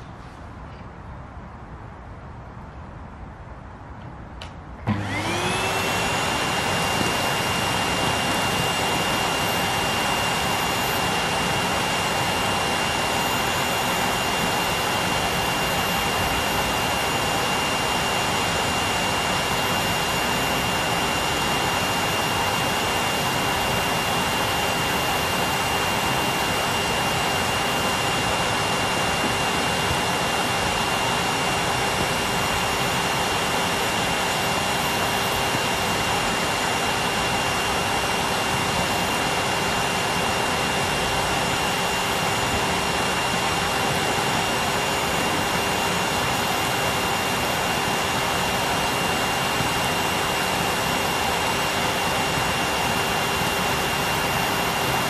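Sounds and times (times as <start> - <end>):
vacuum cleaner running: 4.8 - 55.0.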